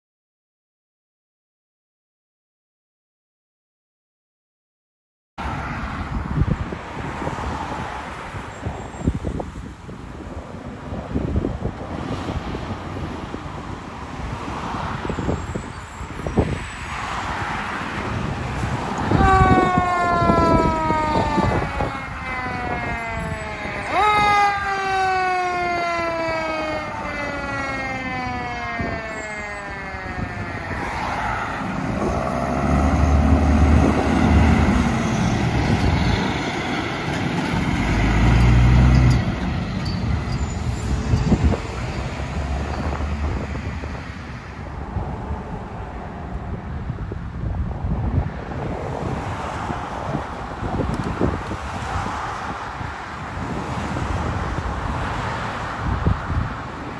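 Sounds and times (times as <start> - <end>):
fire truck siren winding down: 18.6 - 44.1
diesel engine driving past: 30.4 - 43.9.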